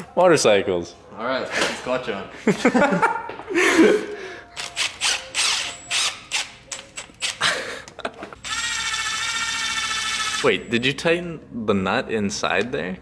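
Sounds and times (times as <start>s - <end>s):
cordless drill running: 4.6s - 6.5s, 8.4s - 10.8s.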